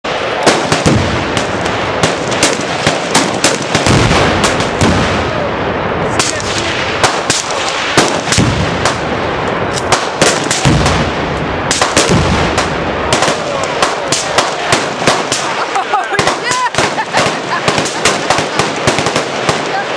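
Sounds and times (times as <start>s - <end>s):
rapid rifle fire: 0.1s - 5.2s, 6.2s - 9.1s, 9.9s - 19.9s
deep explosion booms: 0.5s - 19.6s.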